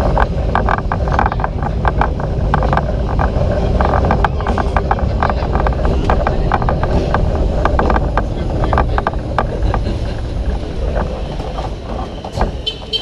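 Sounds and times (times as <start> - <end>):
tram rumbling on track: 0.0 - 13.0
wheels clattering and rattling: 0.0 - 13.0.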